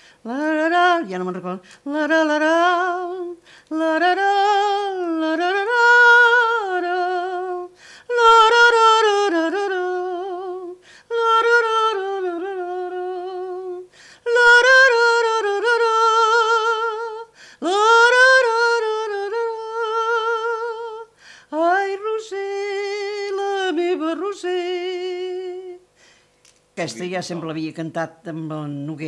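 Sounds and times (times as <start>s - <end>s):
elderly woman singing wordless melody: 0.0s - 25.9s.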